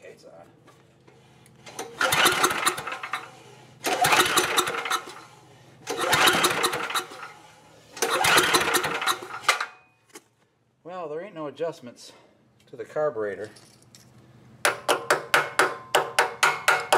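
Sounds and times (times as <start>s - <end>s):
generator engine cranking: 1.1s - 9.8s.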